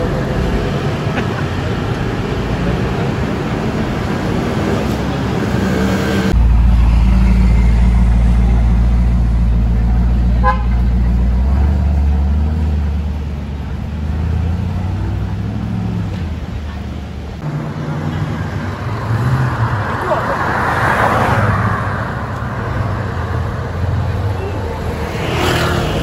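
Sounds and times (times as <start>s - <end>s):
motorbike engines in traffic: 0.0s - 26.0s
vehicle horn toot: 10.4s - 10.8s.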